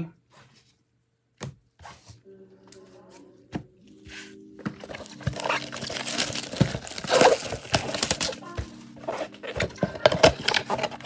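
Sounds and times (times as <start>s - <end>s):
plastic wrap crinkling and tearing: 4.8s - 11.0s.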